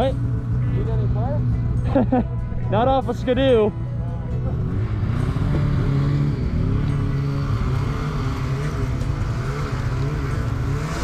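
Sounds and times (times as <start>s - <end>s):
two-stroke snowmobile engine running: 4.6s - 11.0s.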